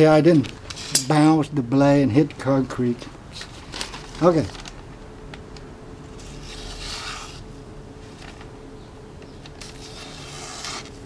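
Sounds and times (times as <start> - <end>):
knife slicing paper: 6.2 - 7.4, 9.6 - 11.0.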